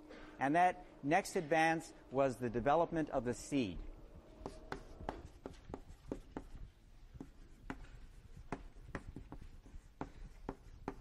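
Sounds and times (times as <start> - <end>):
chalk taps on board: 4.4 - 6.6, 7.2 - 11.0.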